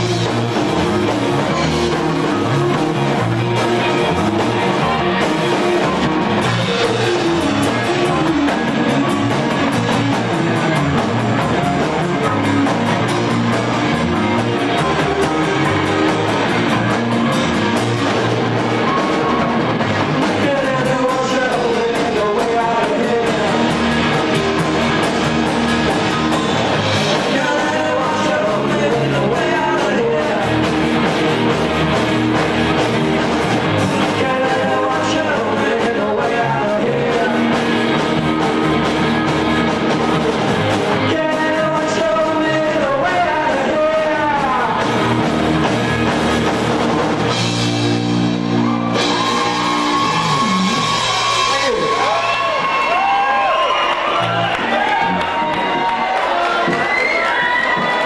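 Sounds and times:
drum kit: 0.0s - 58.0s
electric guitar: 0.0s - 58.0s
person singing: 18.8s - 25.0s, 26.1s - 31.2s, 33.8s - 38.7s, 40.9s - 45.3s.

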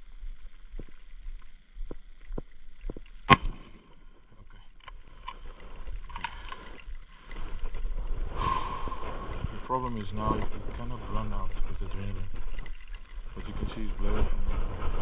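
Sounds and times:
rifle shot: 3.3s - 3.9s
low wind rumble: 5.0s - 15.0s.

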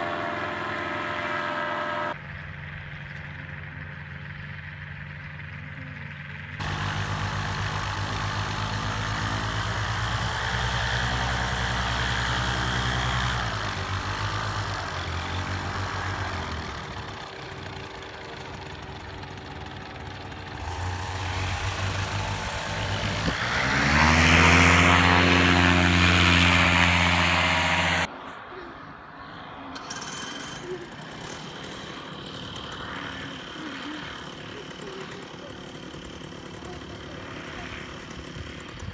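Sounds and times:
paramotor engines running: 0.0s - 28.1s, 29.4s - 38.9s.

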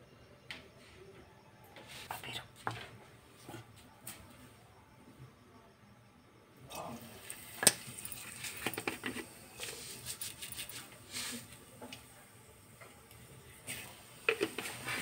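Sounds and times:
seeds sizzling in hot oil: 6.9s - 15.0s.

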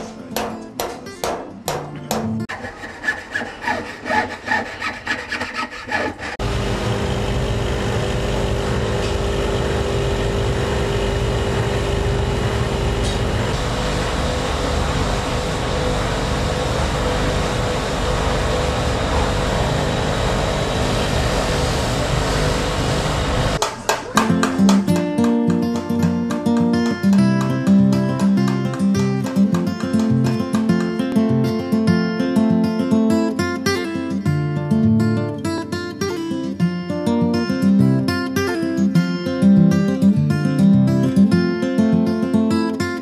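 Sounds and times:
power tool grinding metal: 2.5s - 13.6s.

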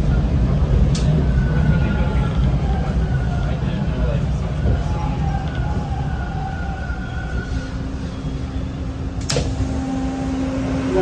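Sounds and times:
train rumbling while braking: 0.0s - 11.0s
traction motor whine: 9.2s - 11.0s.

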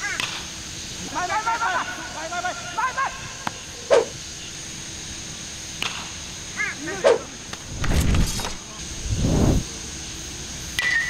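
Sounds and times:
high-pitched yelping call: 3.9s - 4.2s.

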